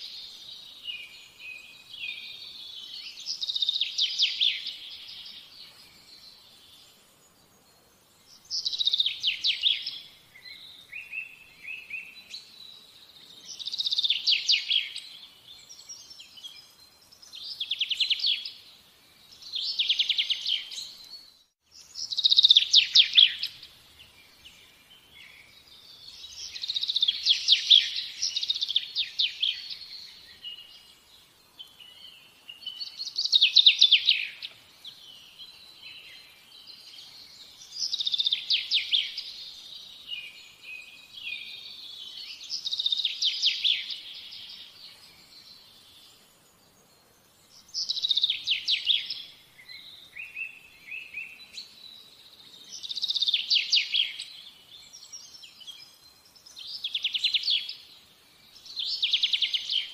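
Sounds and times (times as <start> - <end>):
songbird trilling: 21.9 - 23.6, 32.6 - 34.5.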